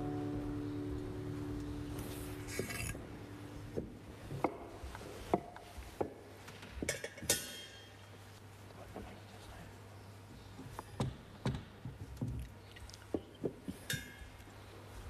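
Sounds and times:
held music notes: 0:00.0 - 0:05.2.

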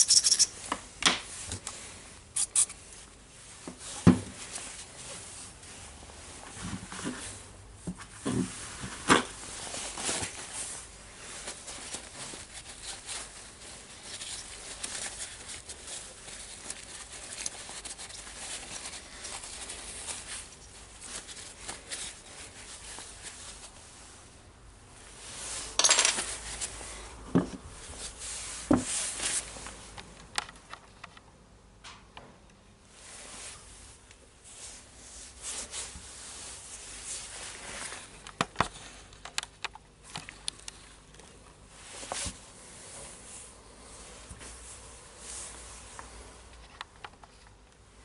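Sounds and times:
paper towel wiping plastic: 0:08.5 - 0:24.2
light clicks and knocks of parts: 0:29.9 - 0:32.6, 0:38.2 - 0:41.5.

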